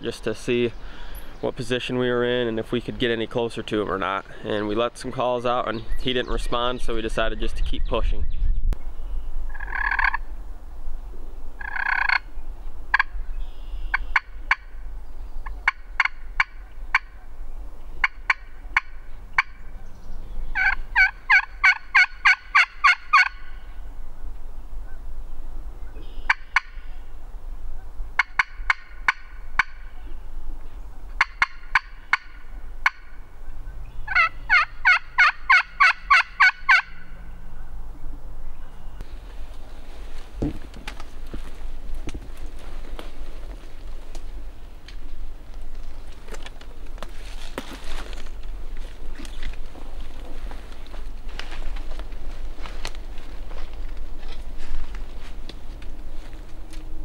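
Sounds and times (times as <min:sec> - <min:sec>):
turkey call yelps: 0:20.5 - 0:23.5, 0:26.1 - 0:27.0, 0:31.2 - 0:33.2, 0:34.1 - 0:37.3.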